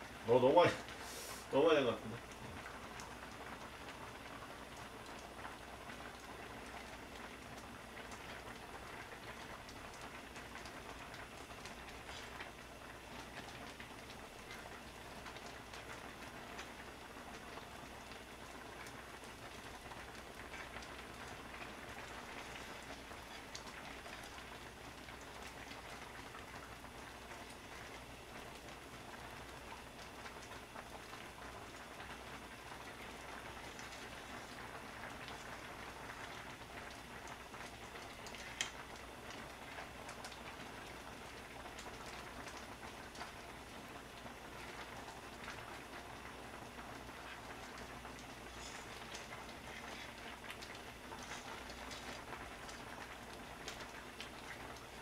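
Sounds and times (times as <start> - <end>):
soup boiling in a pan: 0.0 - 55.0.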